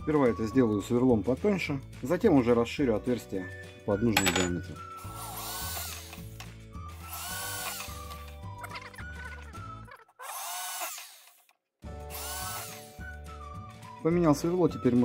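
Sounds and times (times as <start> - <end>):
background music: 0.0 - 9.9, 11.8 - 15.0
electric drill whining: 5.0 - 8.4, 10.2 - 11.5, 12.1 - 13.1.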